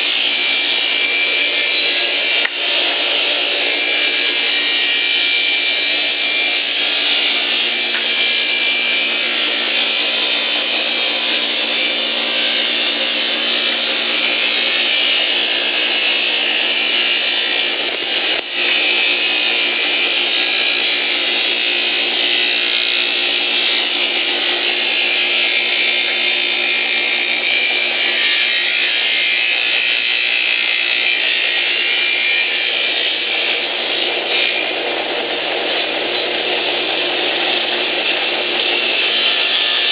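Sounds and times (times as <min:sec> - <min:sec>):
saw machine cutting wood: 0:00.0 - 0:39.9.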